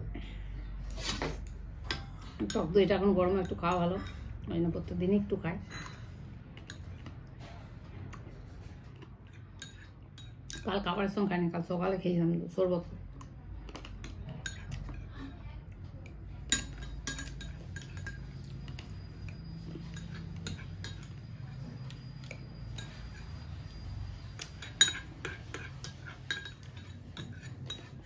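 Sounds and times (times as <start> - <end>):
low steady hum: 0.0 - 28.0
metal spoon clinking on glass bowl: 1.9 - 4.3, 5.7 - 7.0, 9.3 - 10.9, 14.0 - 15.1, 16.4 - 28.0.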